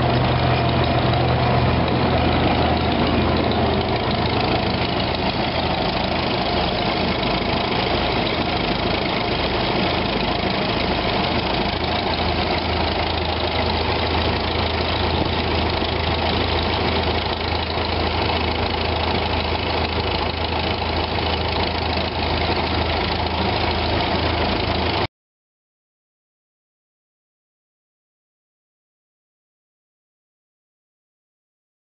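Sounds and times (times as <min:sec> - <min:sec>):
tractor engine knocking: 0:00.0 - 0:25.1.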